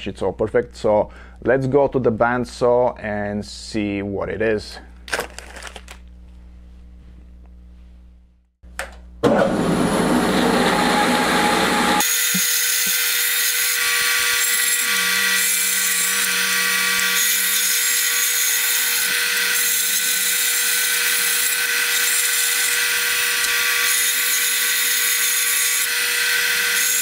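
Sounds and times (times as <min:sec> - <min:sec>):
bandsaw cutting wood: 0:09.5 - 0:27.0.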